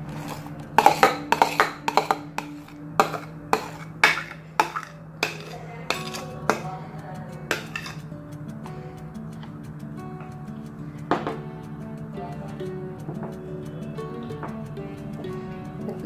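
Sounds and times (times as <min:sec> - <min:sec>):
spatula knocking and scraping bowl: 0:00.1 - 0:06.8, 0:07.5 - 0:08.1.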